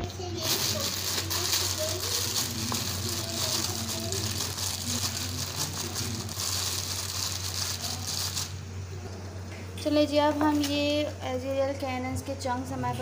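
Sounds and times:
plastic bag crinkling: 0.2 - 8.6.

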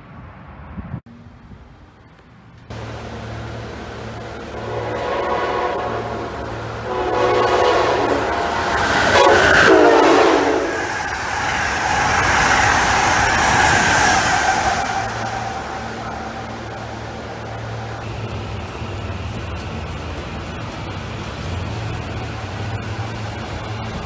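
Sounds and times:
train wheels rushing past: 1.6 - 24.0
train horn blasts: 4.4 - 11.0.

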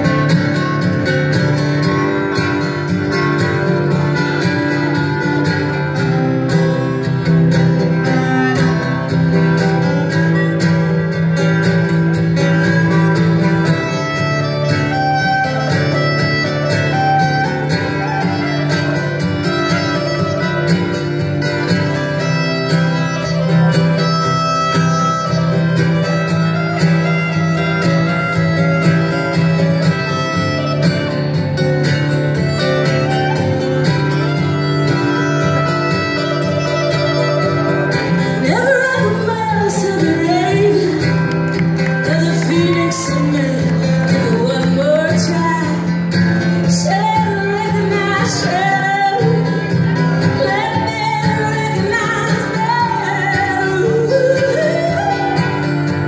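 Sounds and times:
clarinet: 0.0 - 46.0
guitar: 0.0 - 56.0
woman singing: 38.2 - 55.9.

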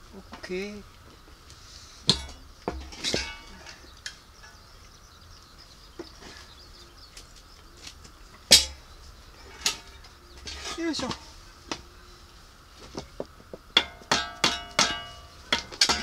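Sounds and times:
metal clinks and knocks: 2.1 - 3.8, 13.8 - 16.0.

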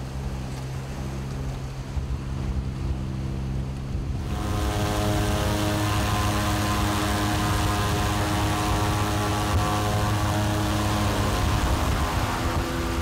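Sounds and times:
motorboat engine running: 0.0 - 13.0
rushing water: 0.0 - 13.0
wind: 0.0 - 13.0.

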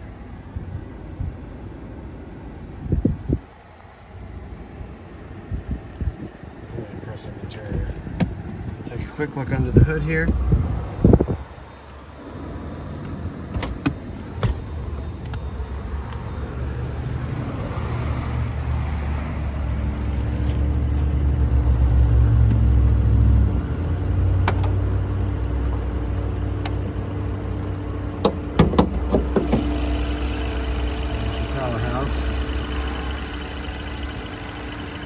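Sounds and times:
car engine idling: 23.9 - 35.0.

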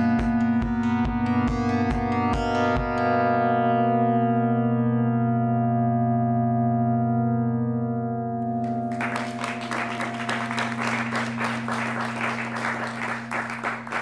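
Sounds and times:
audience applause: 8.6 - 14.0.

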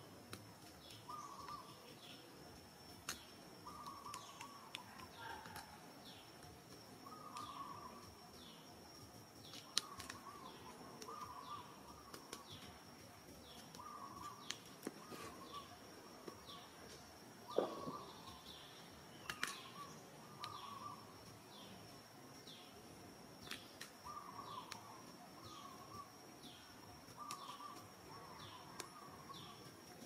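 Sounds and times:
insect whine: 0.0 - 30.0
birds calling: 0.6 - 2.4, 3.0 - 22.8, 23.4 - 29.8
sharp clicks: 19.2 - 19.8.

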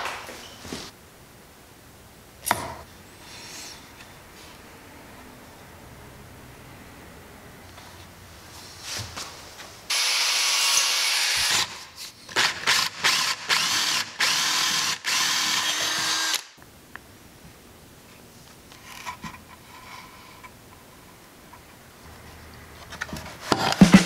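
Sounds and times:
power drill boring into wood: 9.9 - 11.8, 12.4 - 16.5.

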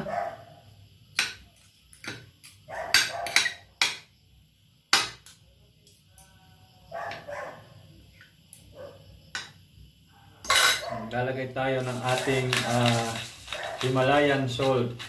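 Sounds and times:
cutlery clinking on a ceramic plate: 10.5 - 10.9.

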